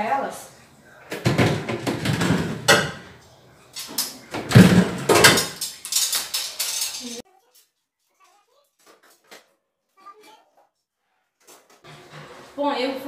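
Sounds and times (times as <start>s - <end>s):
wire shelves clattering and scraping: 1.1s - 7.2s.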